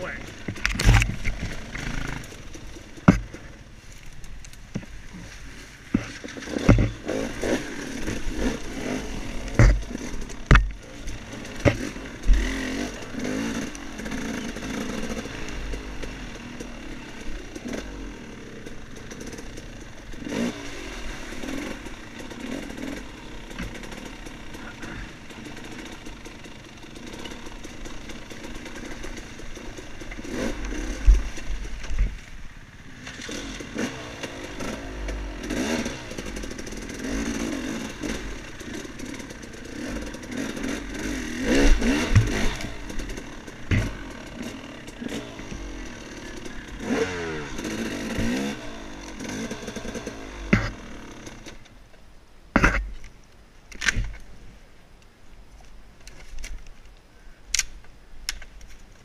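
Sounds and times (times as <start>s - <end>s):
dirt bike engine: 0.0s - 53.1s
sharp knocks and thumps: 2.8s - 3.5s, 5.9s - 7.0s, 9.5s - 10.8s, 41.8s - 42.6s, 43.7s - 44.0s, 52.6s - 53.0s.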